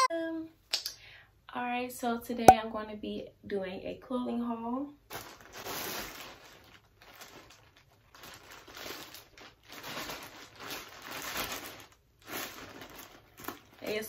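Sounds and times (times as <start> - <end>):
plastic bag crinkling: 5.1 - 14.0.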